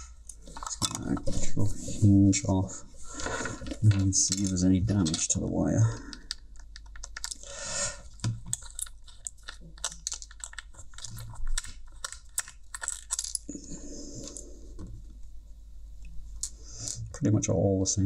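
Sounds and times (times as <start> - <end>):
clicks of plastic parts: 6.0 - 7.4.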